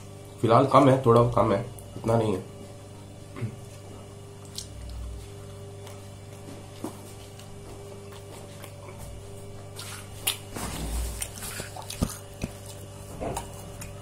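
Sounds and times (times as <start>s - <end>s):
steady low hum: 0.0s - 14.0s
wet squishing of food: 3.6s - 14.0s.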